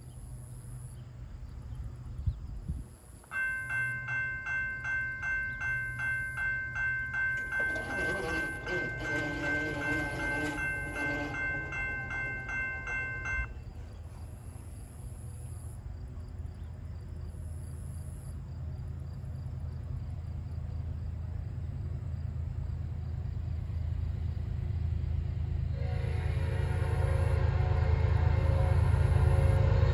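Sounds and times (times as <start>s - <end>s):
approaching train rumble: 0.0s - 29.9s
crossing bell ringing: 3.3s - 14.0s.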